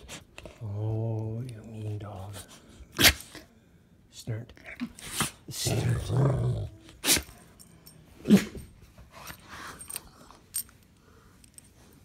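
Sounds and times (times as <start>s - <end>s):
rustling and handling noise: 6.8s - 12.0s.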